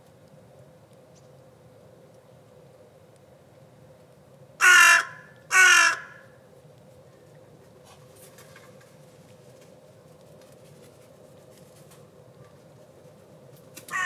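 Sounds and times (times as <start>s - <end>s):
crow cawing: 4.6s - 6.4s.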